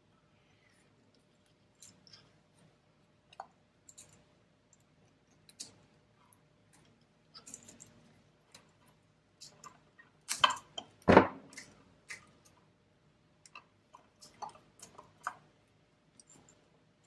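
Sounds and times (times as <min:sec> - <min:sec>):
thump: 0:11.1 - 0:11.4.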